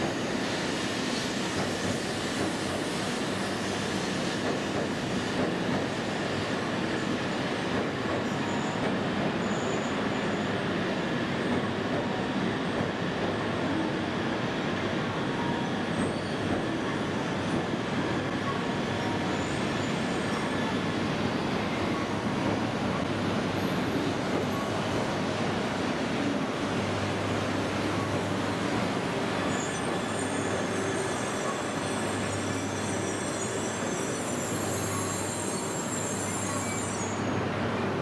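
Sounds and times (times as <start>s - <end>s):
faint wheel squeal: 13.4s - 20.8s, 29.1s - 37.5s.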